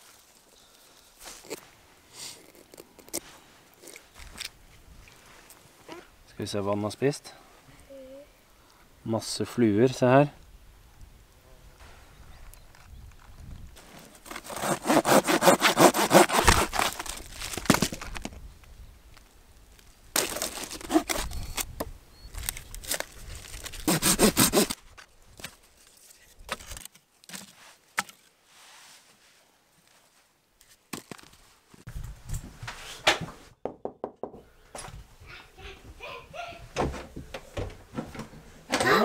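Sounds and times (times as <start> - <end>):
hand saw cutting wood: 14.2 - 17.2, 20.2 - 21.4, 23.8 - 24.8.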